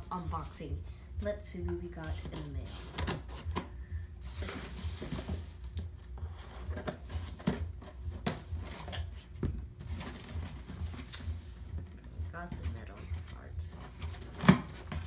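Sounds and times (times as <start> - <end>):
cardboard scraping and rustling: 4.2 - 5.7
scissors cutting packing tape: 14.1 - 15.0.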